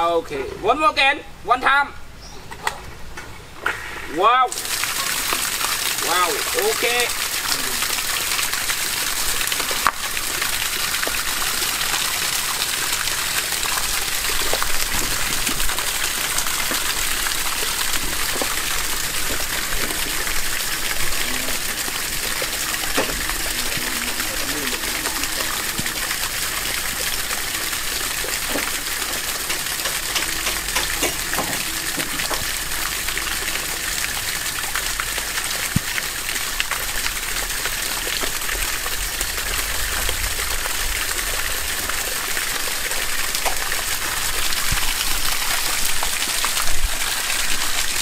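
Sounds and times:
water jet splashing onto plants: 3.6 - 48.0.

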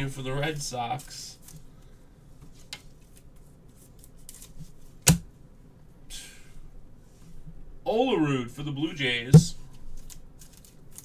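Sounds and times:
cards ticking and rubbing: 9.7 - 11.0.

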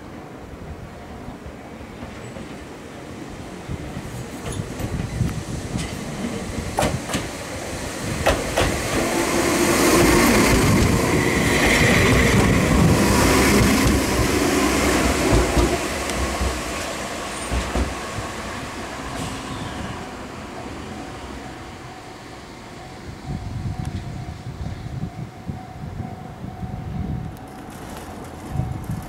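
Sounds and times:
train wheels clicking over rail joints: 4.2 - 18.4
high wheel squeal: 19.1 - 20.1.

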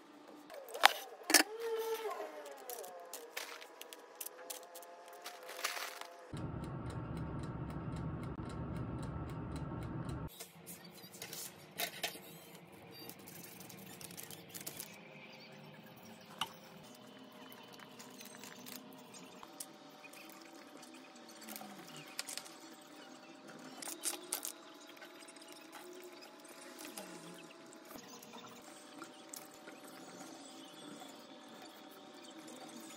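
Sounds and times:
air fryer fan hum: 6.3 - 10.3.

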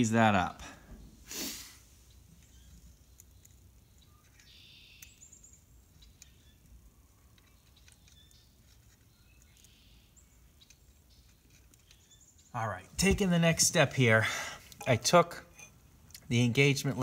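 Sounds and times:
faint bird chirps: 2.0 - 12.6.

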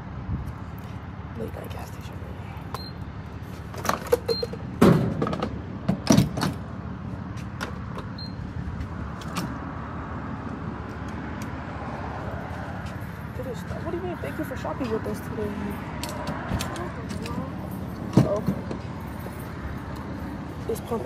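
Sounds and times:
pump beeps: 2.7 - 3.0, 4.2 - 4.6, 8.2 - 8.4.

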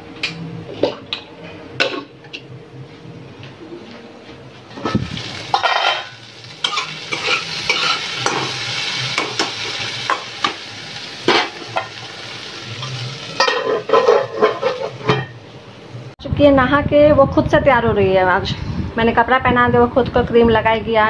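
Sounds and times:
okra sizzling in hot oil: 4.8 - 15.1.

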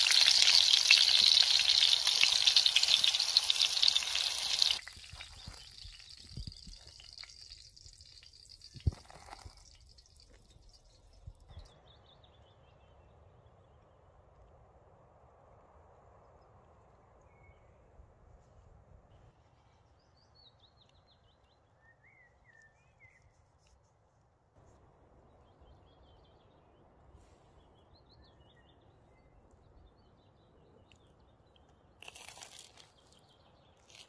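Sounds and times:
crispy food crunch: 0.0 - 10.6, 30.8 - 34.0.

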